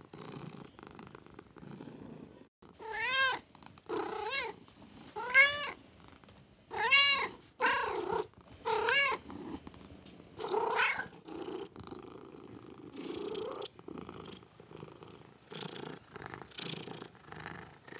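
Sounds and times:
cat purring: 0.0 - 17.9.

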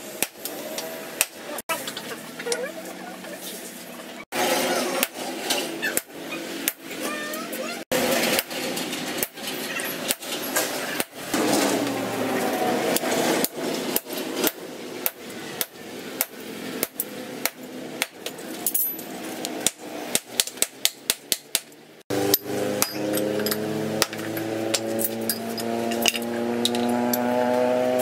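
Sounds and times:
hammer striking steel on anvil: 19.6 - 26.3.

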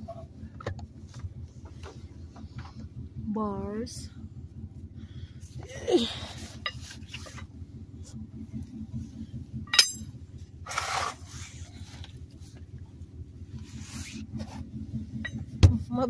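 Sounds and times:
steady low hum: 0.0 - 16.0
metallic clink: 9.7 - 10.1.

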